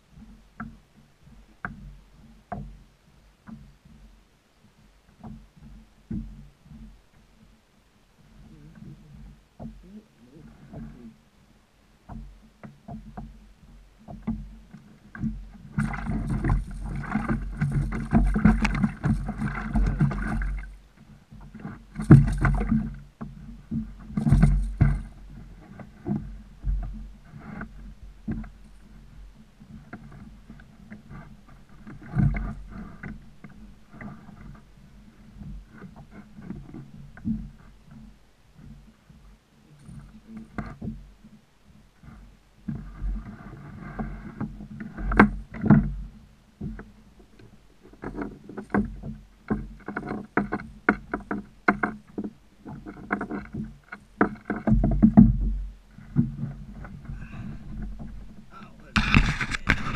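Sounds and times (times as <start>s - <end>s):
knocks and bumps on plastic kayak: 0.0s - 7.6s, 8.2s - 59.9s
scraping and rustling: 15.1s - 20.8s, 46.6s - 59.9s.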